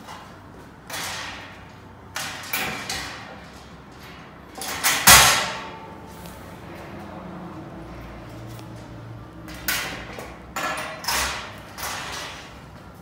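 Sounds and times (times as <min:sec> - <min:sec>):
metal panels scraping and rattling: 0:00.0 - 0:06.9, 0:07.9 - 0:13.0.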